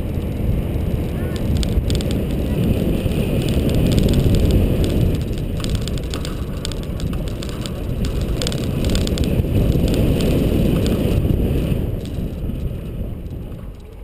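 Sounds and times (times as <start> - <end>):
vehicle engine rumble: 0.0 - 14.0
wind buffeting microphone: 0.0 - 14.0
clicks and knocks: 1.4 - 11.1.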